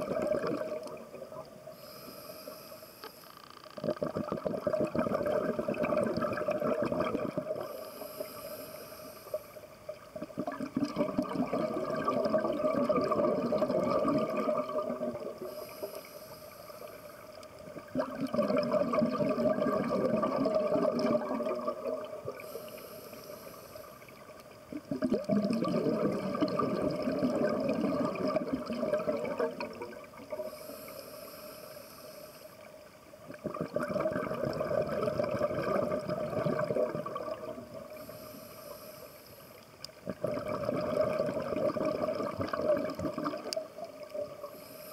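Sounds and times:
bubbling exhalation: 0:00.0 - 0:01.0, 0:03.8 - 0:07.7, 0:10.2 - 0:15.4, 0:17.8 - 0:22.6, 0:24.7 - 0:30.1, 0:33.3 - 0:38.0, 0:40.0 - 0:43.6
regulator inhalation hiss: 0:01.7 - 0:03.5, 0:07.6 - 0:09.8, 0:15.4 - 0:17.4, 0:22.4 - 0:24.2, 0:30.4 - 0:32.7, 0:37.9 - 0:39.6, 0:44.4 - 0:44.9.

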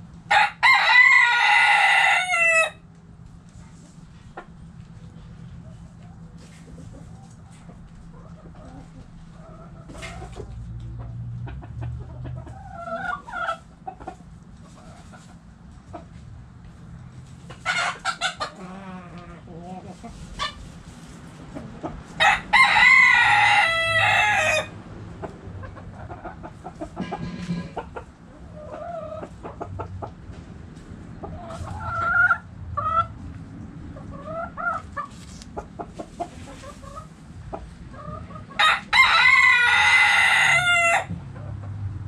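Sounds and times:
rooster crowing: 0:00.3 - 0:02.8, 0:22.2 - 0:24.7, 0:38.6 - 0:41.1
hens clucking: 0:03.5 - 0:41.9.

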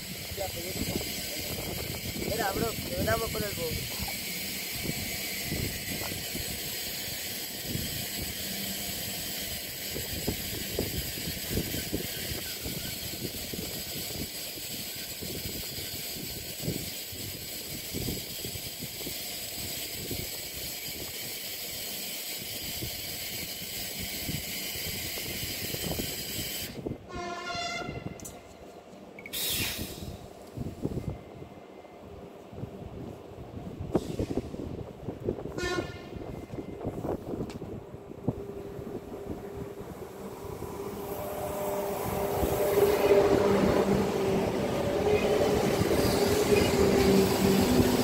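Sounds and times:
wind gusting on microphone: 0:00.0 - 0:21.3, 0:22.5 - 0:28.2, 0:29.4 - 0:31.6, 0:32.6 - 0:48.0
train horn chord: 0:27.1 - 0:28.2, 0:35.6 - 0:36.2.

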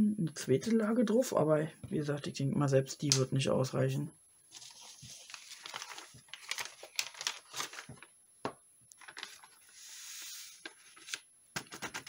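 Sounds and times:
soft steady hiss: 0:00.0 - 0:11.6
paper rustling and crinkling: 0:04.5 - 0:08.1, 0:08.9 - 0:12.0
powder sliding across paper: 0:09.6 - 0:11.0.

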